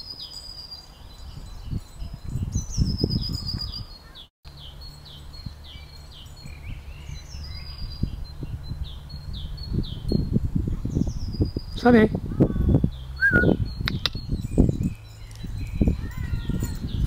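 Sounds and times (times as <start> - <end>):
bird trill: 0.0 - 17.0
songbird falling chirp: 12.4 - 17.0.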